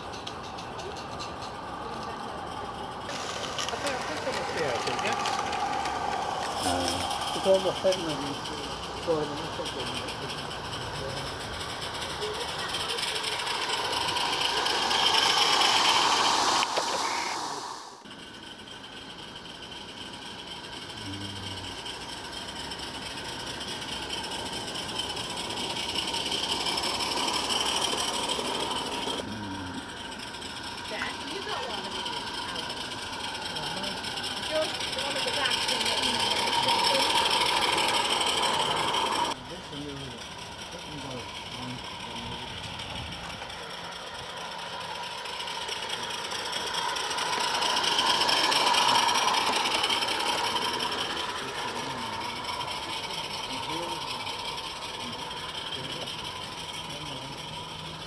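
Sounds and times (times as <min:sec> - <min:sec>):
steam locomotive hissing: 0:00.0 - 0:58.0
train running on rails: 0:00.0 - 0:58.0.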